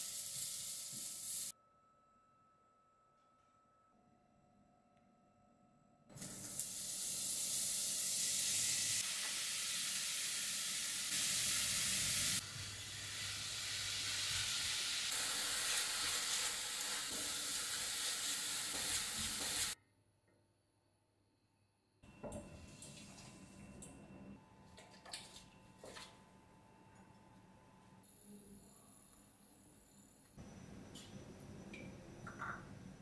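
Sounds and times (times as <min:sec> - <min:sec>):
food sizzling in a pan: 0:00.0 - 0:01.5, 0:06.1 - 0:19.8.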